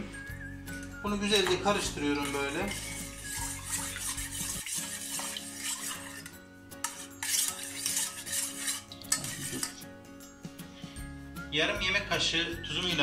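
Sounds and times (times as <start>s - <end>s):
spoon scraping and clinking saucepan: 1.3s - 9.9s.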